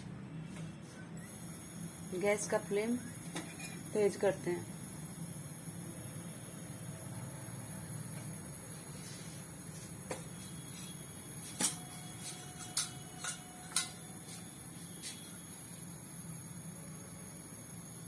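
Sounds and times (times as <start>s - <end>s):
sharp ticks of heating pan: 11.5s - 14.4s.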